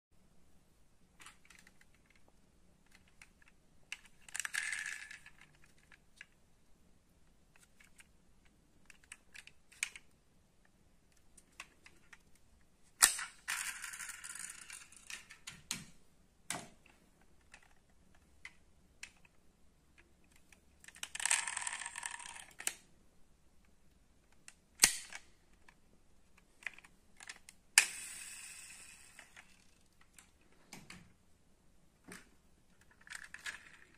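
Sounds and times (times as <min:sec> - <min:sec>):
toy cars rolling across wood: 0:01.2 - 0:06.3, 0:13.0 - 0:15.5, 0:20.4 - 0:22.8, 0:26.6 - 0:30.3, 0:32.7 - 0:33.9
metal toy cars clicking on wood: 0:01.2 - 0:06.4, 0:13.0 - 0:15.8, 0:17.4 - 0:22.9, 0:24.3 - 0:25.8, 0:26.4 - 0:30.3, 0:32.8 - 0:33.9.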